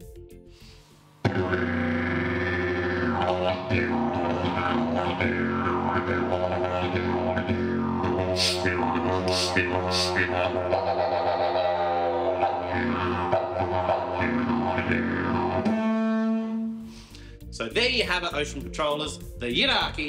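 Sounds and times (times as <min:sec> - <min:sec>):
didgeridoo drone: 0:01.2 - 0:17.0.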